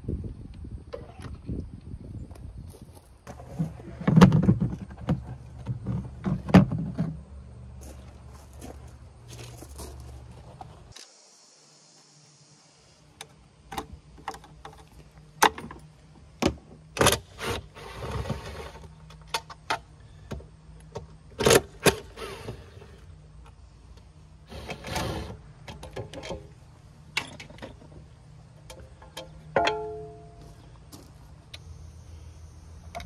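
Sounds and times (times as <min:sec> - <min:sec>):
metallic clicks and knocks: 0:28.6 - 0:30.3.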